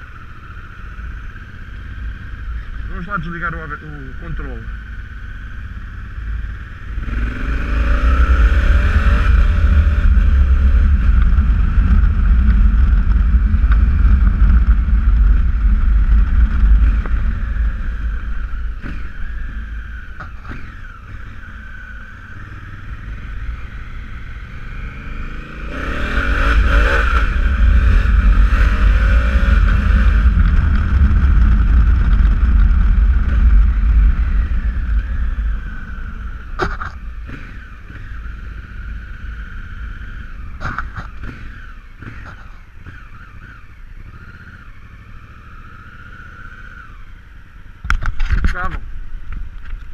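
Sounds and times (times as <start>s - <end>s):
motorcycle engine accelerating: 0.0s - 49.9s.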